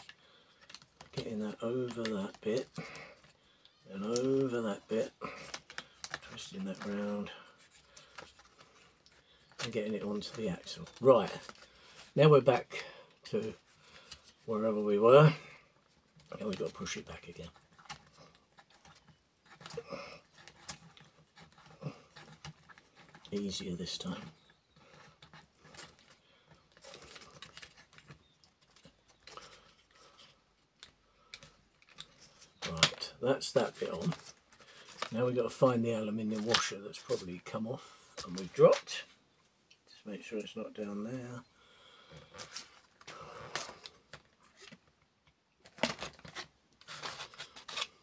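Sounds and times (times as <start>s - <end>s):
hands rummaging small parts and paper: 0.0s - 12.3s, 15.8s - 37.5s, 42.2s - 44.9s, 45.6s - 48.0s
small irregular clicks: 24.8s - 32.9s.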